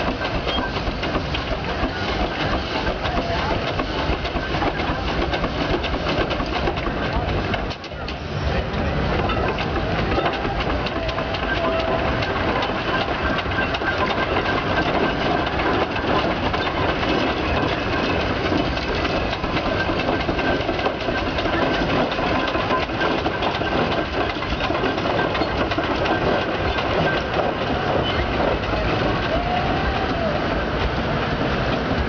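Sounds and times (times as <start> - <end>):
steam traction engine clattering: 0.0 - 32.0.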